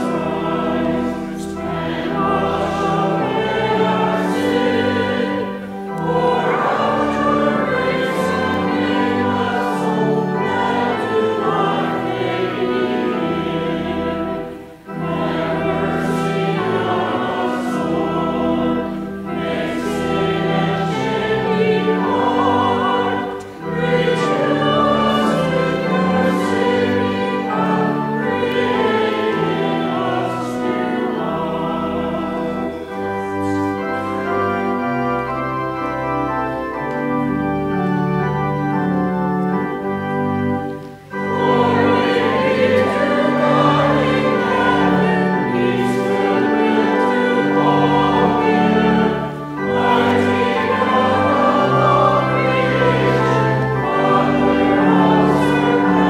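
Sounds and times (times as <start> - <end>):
congregation singing: 0.0 - 56.0.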